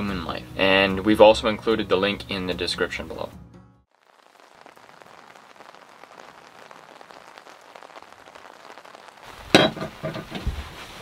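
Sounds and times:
heavy rain on boat deck: 0:03.9 - 0:11.0.

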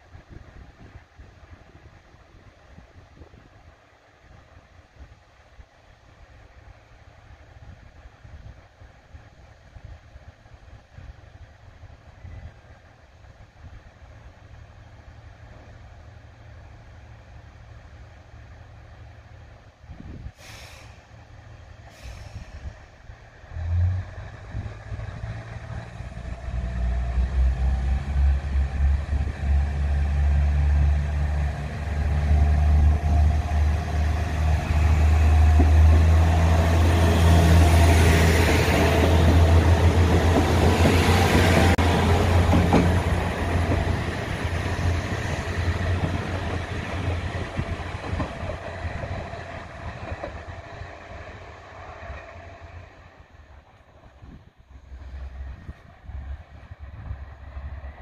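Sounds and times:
air hisses: 0:20.3 - 0:21.2, 0:21.9 - 0:22.8
wheel and rail noise: 0:20.8 - 0:58.0.

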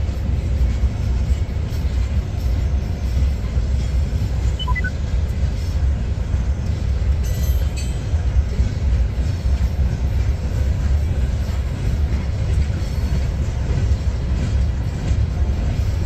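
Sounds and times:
train wheels rumbling on rail: 0:00.0 - 0:16.0
falling run of high tones: 0:04.6 - 0:04.9.

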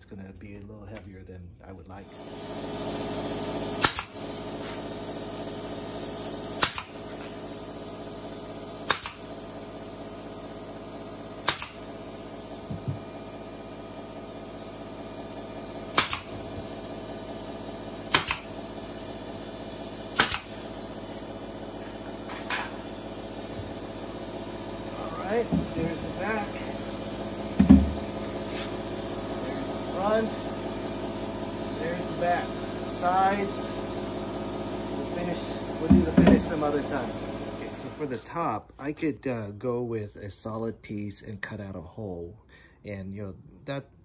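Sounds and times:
brad nailer firing into plywood: 0:03.7 - 0:04.2, 0:06.6 - 0:07.4, 0:08.8 - 0:09.4, 0:11.4 - 0:11.9, 0:15.8 - 0:16.7, 0:18.0 - 0:18.6, 0:20.1 - 0:20.6, 0:27.5 - 0:28.4
steady hum: 0:20.0 - 0:38.6.

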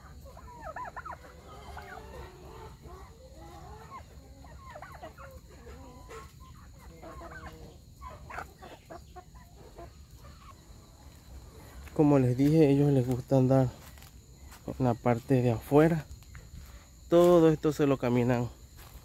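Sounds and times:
fowl clucking: 0:00.0 - 0:13.2.

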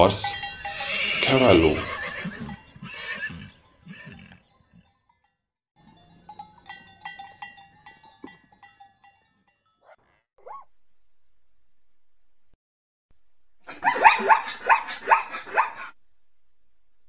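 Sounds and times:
horse whinnying: 0:00.4 - 0:04.8
dog yelping: 0:09.8 - 0:10.7, 0:13.7 - 0:15.9.

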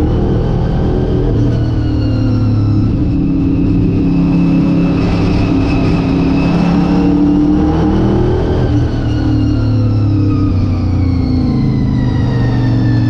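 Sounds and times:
race car engine running hard: 0:00.0 - 0:13.0.

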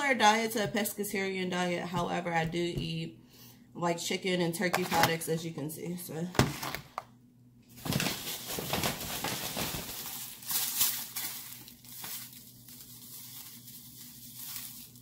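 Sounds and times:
plastic bag crinkling: 0:07.8 - 0:15.0.

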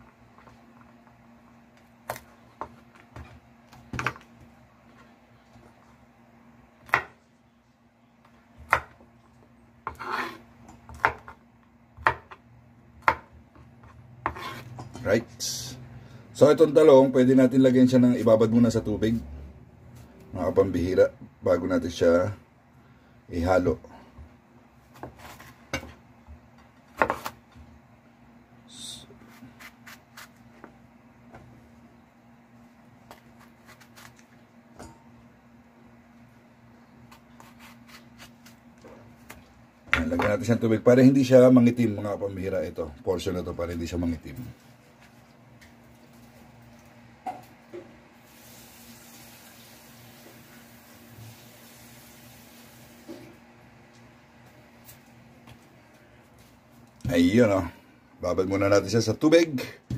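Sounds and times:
knife chopping on wooden board: 0:14.2 - 0:14.8, 0:26.9 - 0:27.4.

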